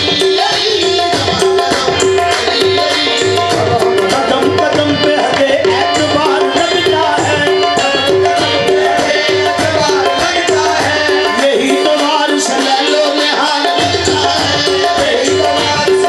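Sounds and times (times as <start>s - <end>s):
fast tabla drumming: 0.0s - 16.0s
harmoniums repeating melodic phrase: 0.0s - 16.0s.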